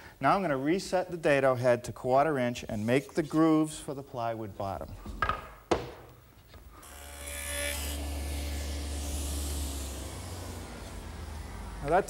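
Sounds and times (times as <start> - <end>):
table saw running: 6.8 - 12.0.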